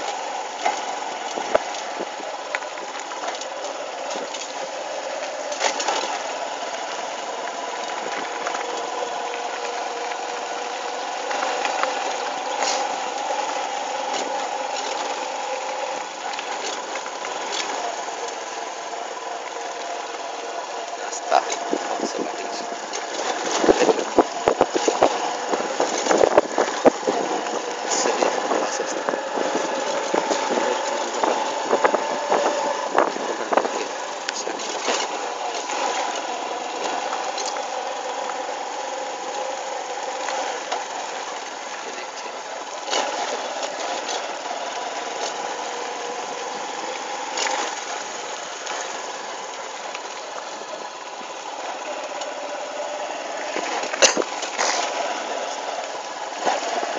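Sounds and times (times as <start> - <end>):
motorcycle engine running: 0.0 - 56.9
wind buffeting microphone: 21.5 - 35.4.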